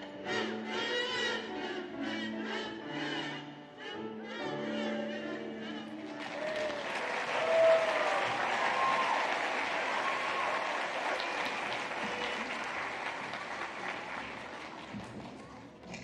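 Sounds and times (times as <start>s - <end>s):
audience applauding: 5.8s - 16.0s.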